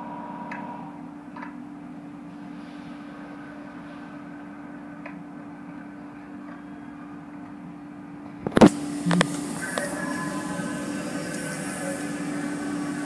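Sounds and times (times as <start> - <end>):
car wash machine hum: 8.6 - 13.0.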